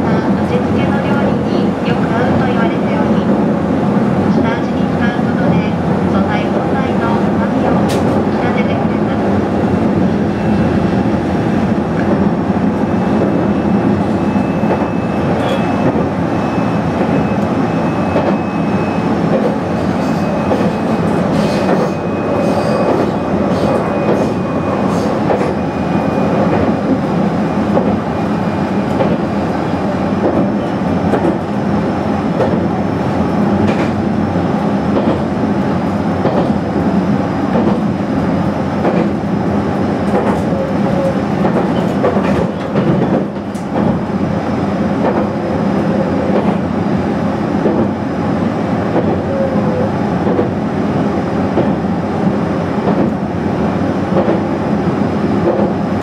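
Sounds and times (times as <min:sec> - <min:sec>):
train wheels rumbling on rail: 0:00.0 - 0:56.0
rail-joint clicks: 0:07.8 - 0:08.2, 0:18.1 - 0:18.5, 0:19.3 - 0:25.6, 0:27.7 - 0:28.0, 0:28.9 - 0:29.2, 0:33.6 - 0:34.0, 0:38.8 - 0:39.2, 0:40.0 - 0:44.0, 0:50.2 - 0:50.6, 0:52.8 - 0:53.2, 0:54.1 - 0:54.5, 0:55.4 - 0:55.8.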